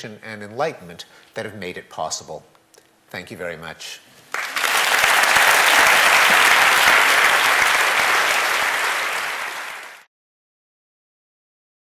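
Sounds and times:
audience applauding: 0:04.3 - 0:10.1.

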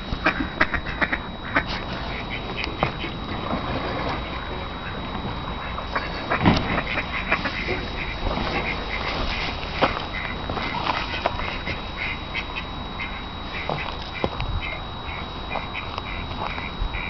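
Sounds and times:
ducks quacking: 0:00.2 - 0:17.0
dull thump: 0:06.4 - 0:06.9.

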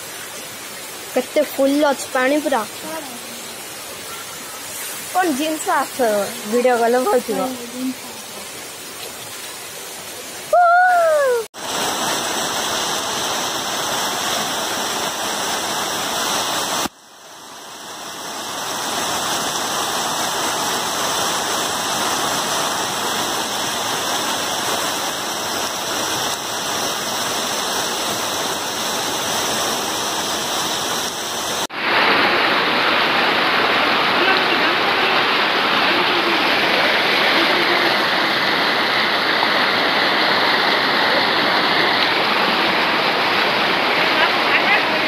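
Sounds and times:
floodwater rushing: 0:00.0 - 0:45.0.

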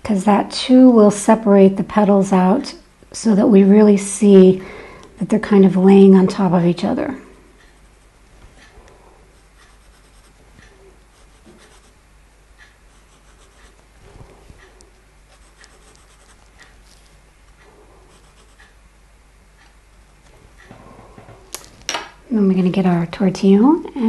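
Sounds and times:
pencil scratching on paper: 0:09.3 - 0:12.0, 0:12.9 - 0:13.8, 0:15.3 - 0:16.7, 0:18.0 - 0:18.7.

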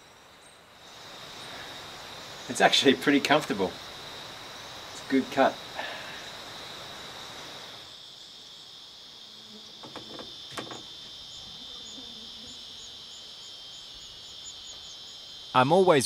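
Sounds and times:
cicadas droning: 0:00.0 - 0:16.0
wooden door latch clicks: 0:09.8 - 0:10.9.

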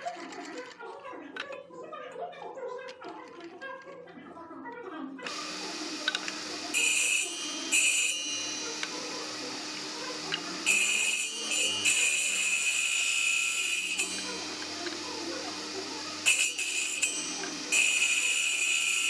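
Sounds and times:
saw blade whine cutting wood: 0:05.3 - 0:19.0
table saw humming: 0:05.3 - 0:19.0.

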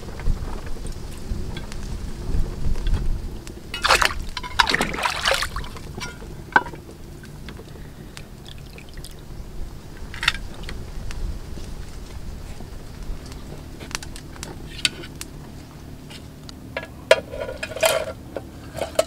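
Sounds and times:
water dripping: 0:03.7 - 0:09.3
hands splashing in water: 0:03.8 - 0:06.2.

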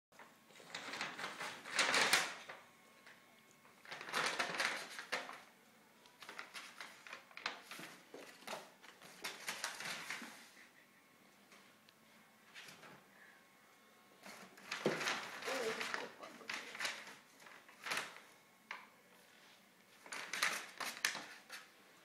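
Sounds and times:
plastic bag rustling and crinkling: 0:00.2 - 0:05.5, 0:06.2 - 0:10.6, 0:14.2 - 0:18.3, 0:19.2 - 0:22.0.

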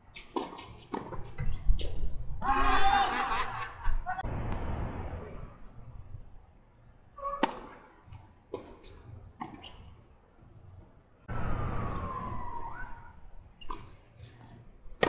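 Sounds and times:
tennis ball hit by racket: 0:07.4 - 0:08.8.

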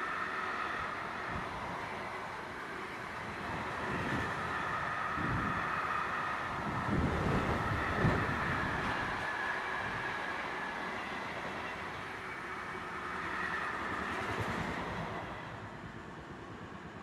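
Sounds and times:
wind buffeting microphone: 0:02.7 - 0:11.2.

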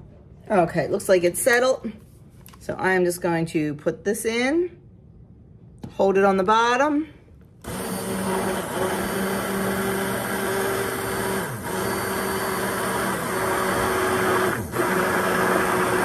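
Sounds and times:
immersion blender running: 0:07.6 - 0:16.0.

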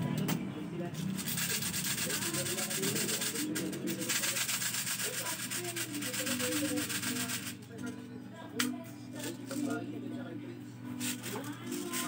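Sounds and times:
plastic pellets rattling in magazine: 0:01.2 - 0:07.6.

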